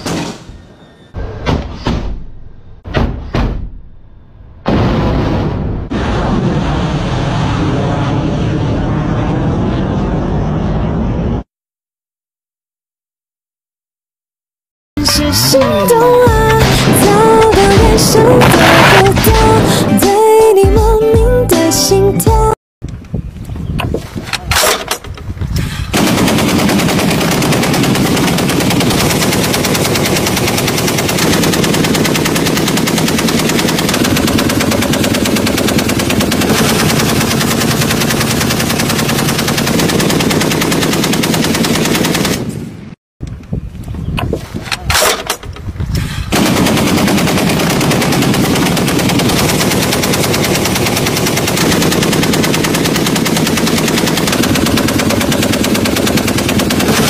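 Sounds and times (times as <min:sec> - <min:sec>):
machine gun automatic fire: 0:17.5 - 0:19.3, 0:25.9 - 0:42.6, 0:46.3 - 0:57.0
separate gunshots: 0:25.9 - 0:42.6, 0:46.3 - 0:57.0.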